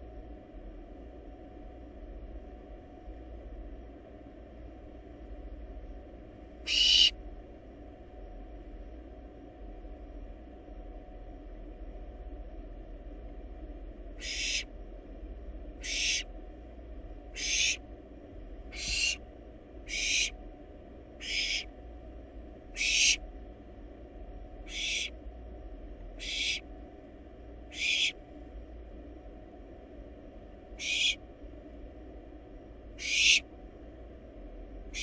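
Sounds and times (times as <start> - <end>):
steady low hum: 0.0 - 35.0
owl chick hissing begging call: 6.7 - 7.1, 14.2 - 14.7, 15.8 - 16.3, 17.3 - 17.8, 18.7 - 19.2, 19.9 - 20.3, 21.2 - 21.7, 22.8 - 23.2, 24.7 - 25.1, 26.2 - 26.6, 27.7 - 28.2, 30.8 - 31.2, 33.0 - 33.4.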